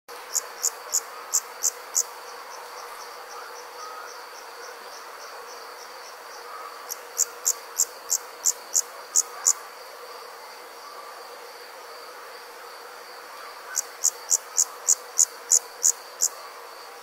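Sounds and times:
faint insect ticking: 0.2 - 9.6, 13.7 - 16.9
loud high insect chirps: 0.2 - 9.7, 13.1 - 17.0
steady high insect trill: 0.2 - 17.0.

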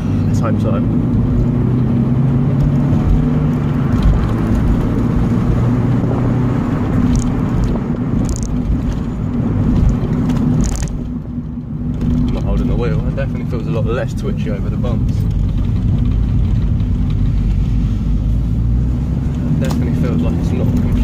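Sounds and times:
car engine hum: 0.0 - 21.0
tyre and road noise: 0.0 - 21.0.

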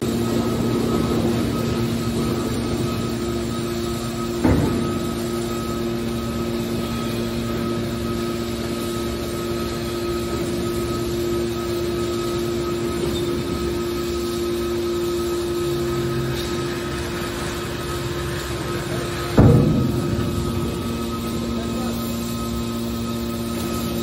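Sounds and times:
hydraulic power unit humming: 0.0 - 24.0
metal clank: 4.4 - 5.7, 19.2 - 22.9.

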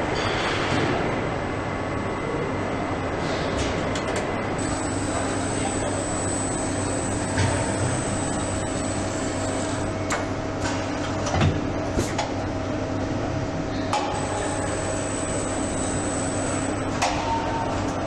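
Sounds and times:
assembly-line machinery hum: 4.4 - 11.2, 11.8 - 17.2
constant high whine: 4.5 - 10.8, 12.2 - 18.0.

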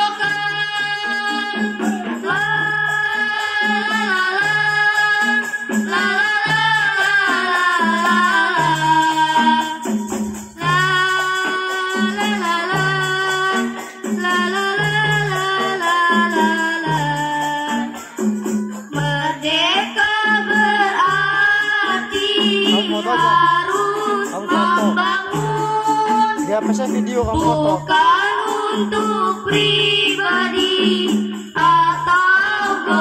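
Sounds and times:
light percussion: 0.0 - 33.0
women singing through loudspeakers: 0.0 - 33.0
steady beat with bass line: 26.5 - 28.0.

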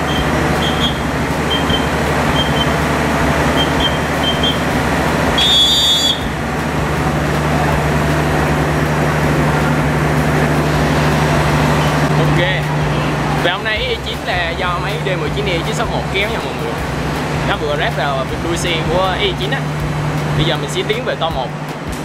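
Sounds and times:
high-pitched metallic squeal: 0.0 - 13.5
locomotive engine droning: 0.0 - 22.0.

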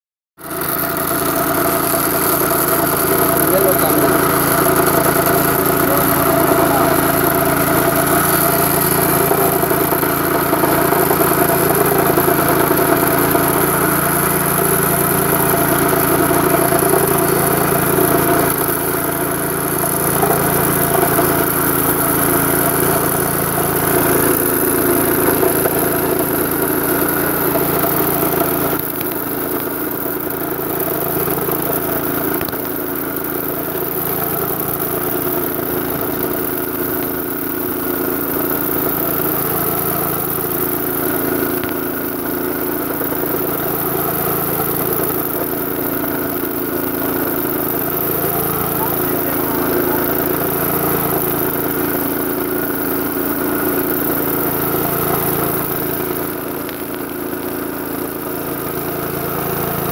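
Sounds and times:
rail saw engine drone: 0.9 - 28.9.

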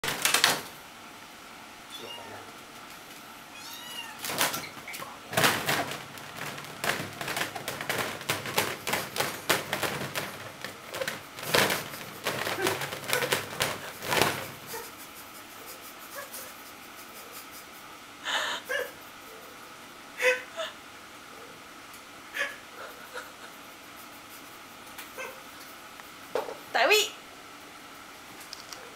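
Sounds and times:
kitten mewing: 1.9 - 2.5, 3.5 - 4.2
wire mesh panels rattling: 4.2 - 14.9.

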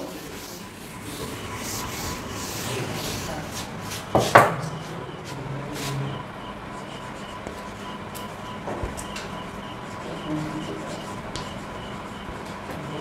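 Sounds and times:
chalk tapping and scratching: 0.0 - 4.5, 6.8 - 7.9, 9.9 - 12.6
board duster rubbing chalkboard: 0.0 - 6.1.

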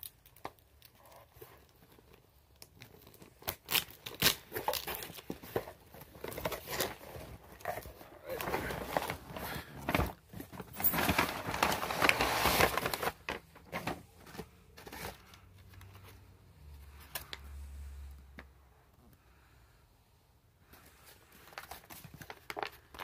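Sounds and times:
packing material rustling: 0.0 - 16.1, 20.8 - 23.0.

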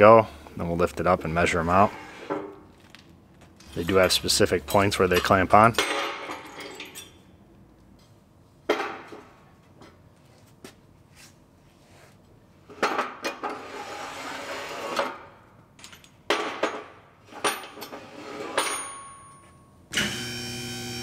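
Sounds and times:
steel clamps clanking and scraping: 3.6 - 7.3
electric motor humming: 20.0 - 21.0.

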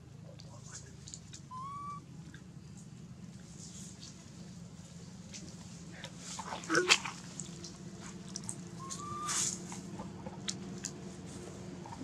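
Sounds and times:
monkey squealing: 1.5 - 2.0, 8.8 - 9.5
dry leaves rustling: 3.4 - 10.0.

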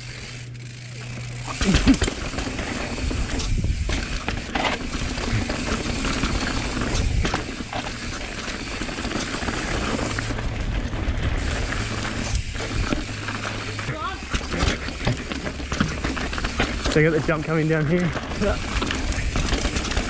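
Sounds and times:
bike tyres and rattling: 0.0 - 20.0.

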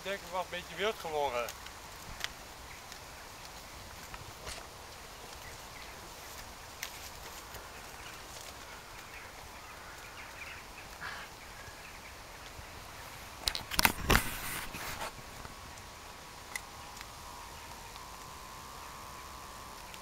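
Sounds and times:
faint bird calls: 5.0 - 13.4.

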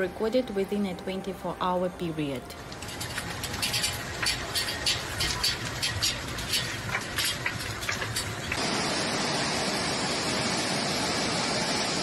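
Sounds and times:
light ticks and patter: 2.5 - 8.6
water rushing from spillway: 3.3 - 12.0.

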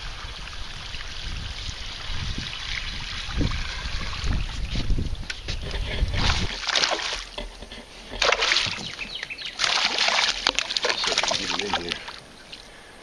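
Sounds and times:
fish splashing in water: 5.7 - 12.7.

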